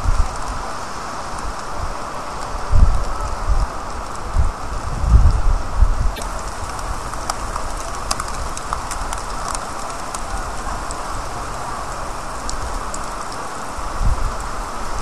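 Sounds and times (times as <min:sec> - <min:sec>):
rain on a wet street: 0:00.0 - 0:15.0.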